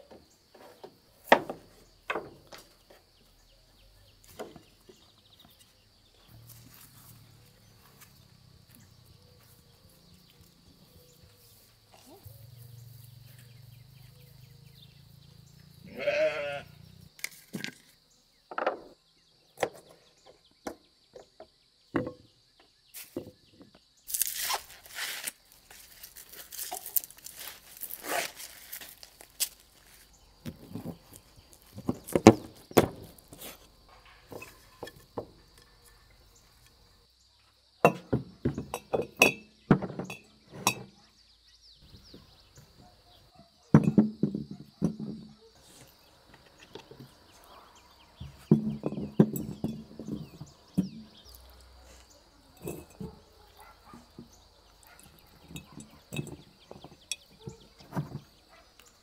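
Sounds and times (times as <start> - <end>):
food preparation knocks and clinks: 37.8 - 40.9, 43.7 - 45.3, 48.2 - 51.3, 52.6 - 53.3, 55.0 - 58.3.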